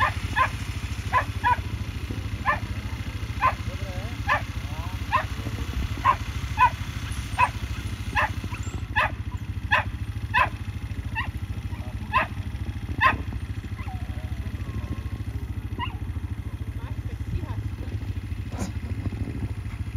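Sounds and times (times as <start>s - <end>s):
dog barking and yelping: 0.0s - 1.8s, 2.4s - 5.4s, 6.0s - 12.4s, 13.0s - 16.2s
small engine chugging: 0.0s - 19.9s.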